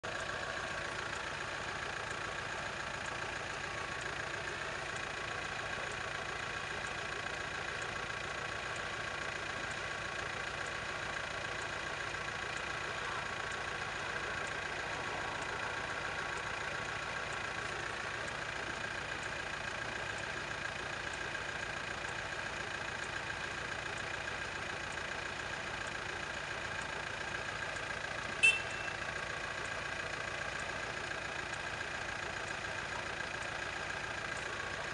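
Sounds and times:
sharp high-pitched sound: 28.4 - 28.9.

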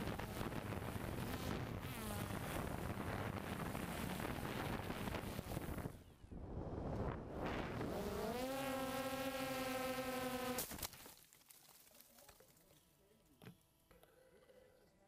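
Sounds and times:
wind rushing: 2.7 - 8.0.

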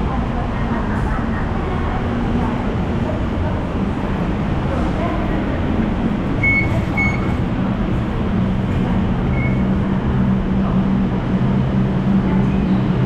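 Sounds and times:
large vehicle engine droning: 0.0 - 13.0
street traffic: 0.0 - 13.0
short high beeps: 6.4 - 7.4, 9.3 - 9.6.

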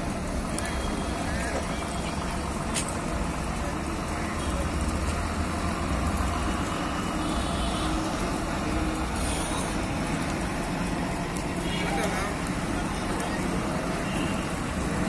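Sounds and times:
diesel bus engine: 0.0 - 15.0
road traffic: 0.0 - 15.0.

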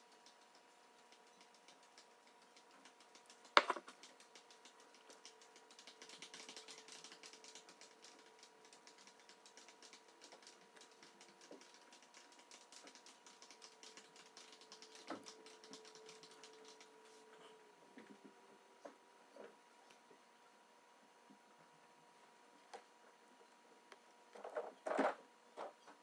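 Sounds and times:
faint steady hum: 0.0 - 26.0
insect chewing clicks: 0.1 - 16.9.

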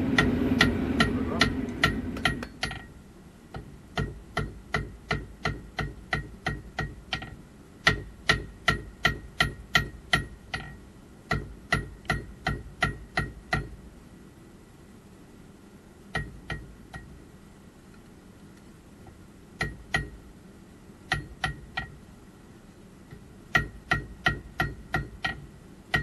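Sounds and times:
hammer striking steel on anvil: 0.1 - 2.9, 4.0 - 13.8, 23.5 - 26.0.

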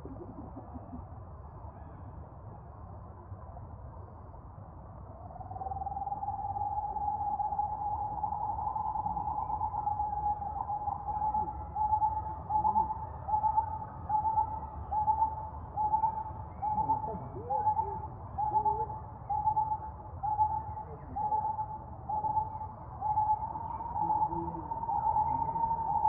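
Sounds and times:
bird hooting: 5.5 - 26.0.

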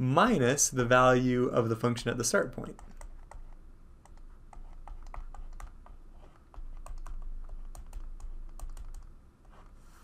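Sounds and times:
stylus tapping on screen: 2.8 - 9.1.

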